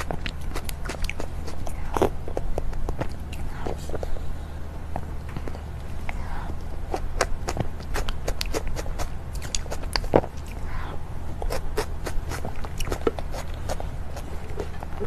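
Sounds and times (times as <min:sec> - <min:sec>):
person chewing with mouth clicks: 0:00.0 - 0:04.2, 0:05.1 - 0:10.8, 0:11.4 - 0:15.0
low steady hum: 0:00.0 - 0:15.0.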